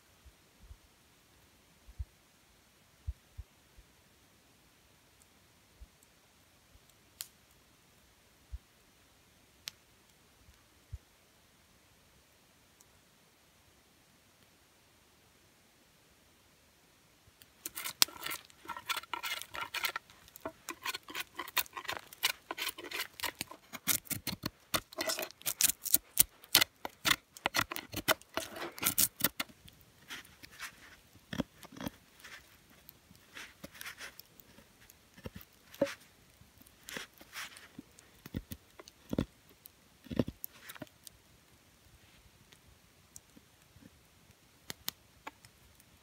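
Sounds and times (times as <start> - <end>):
knife carving wooden stick: 17.6 - 39.4, 40.1 - 40.9.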